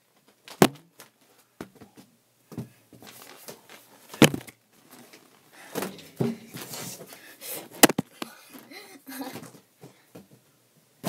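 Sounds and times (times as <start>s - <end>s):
shuffling and rustling: 0.1s - 10.5s.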